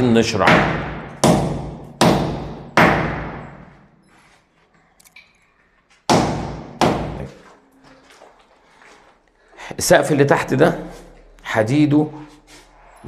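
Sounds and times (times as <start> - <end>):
hammer striking concrete: 0.4 - 3.7, 6.1 - 7.3.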